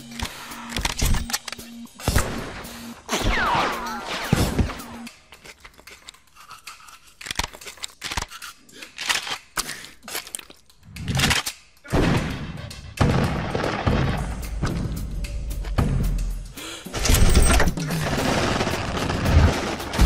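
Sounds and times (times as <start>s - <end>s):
cartoon eating crunches: 5.4s - 11.4s
tooth-brushing scrubbing strokes: 5.8s - 7.3s.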